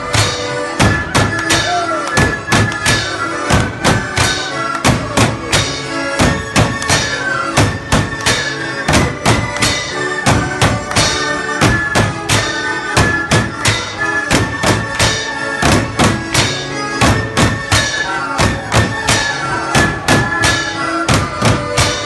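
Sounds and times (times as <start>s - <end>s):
drum strokes: 0.0s - 22.0s
fifes playing melody: 0.0s - 22.0s.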